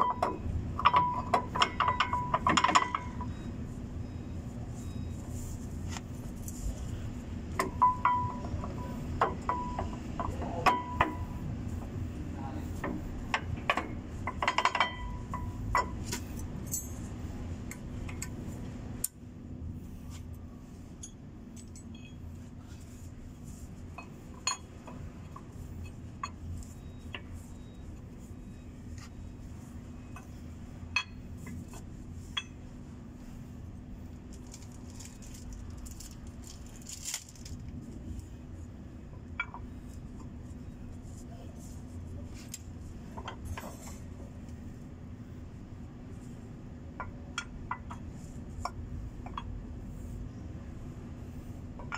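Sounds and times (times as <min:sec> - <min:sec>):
metal brake parts clinking: 0:00.0 - 0:03.4, 0:07.6 - 0:11.4, 0:13.6 - 0:17.2, 0:21.0 - 0:22.8, 0:23.9 - 0:27.7
steady low hum: 0:00.0 - 0:51.9.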